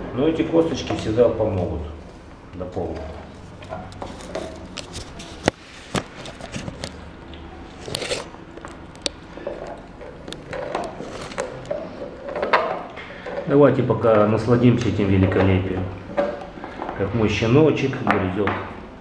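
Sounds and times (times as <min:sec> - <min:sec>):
puppy gnawing bone on tile: 0:03.4 - 0:13.4.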